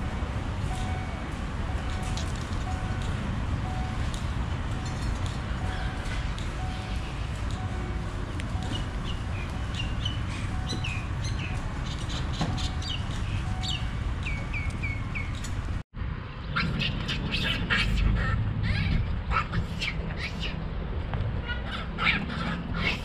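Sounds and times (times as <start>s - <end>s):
small birds chirping: 8.6s - 15.5s
harsh bird calls: 16.4s - 20.6s, 21.4s - 23.0s.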